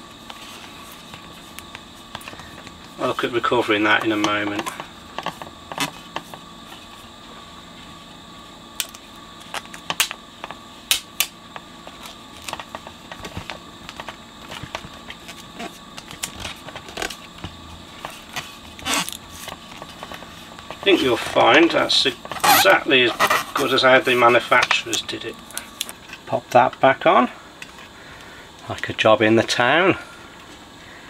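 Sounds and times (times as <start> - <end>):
vinyl strip crinkling: 0.1 - 7.1, 8.8 - 26.7.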